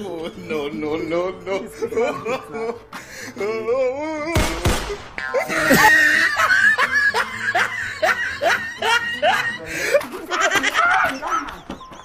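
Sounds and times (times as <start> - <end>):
woman laughing hard: 5.4 - 12.0.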